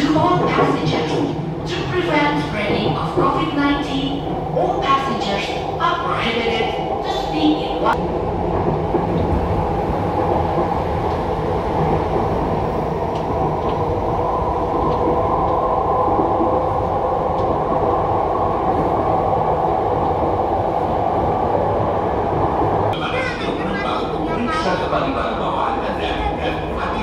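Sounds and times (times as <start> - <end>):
train wheels rumbling on track: 0.0 - 27.0.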